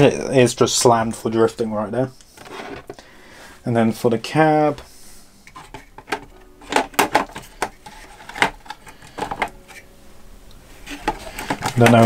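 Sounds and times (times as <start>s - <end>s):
plastic clicks and knocks: 5.5s - 9.6s, 10.9s - 12.0s.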